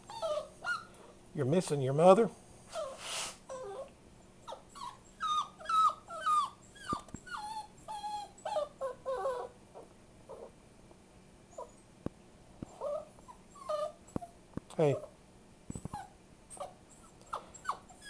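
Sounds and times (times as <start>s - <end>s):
puppy whimpering: 0.0s - 1.0s, 2.7s - 3.9s, 4.5s - 10.5s, 11.5s - 11.8s, 12.7s - 15.1s, 15.7s - 18.0s.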